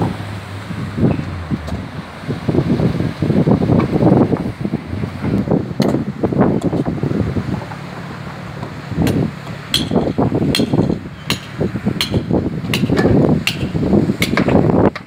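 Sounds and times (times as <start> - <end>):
metal tool striking concrete: 9.7 - 14.4.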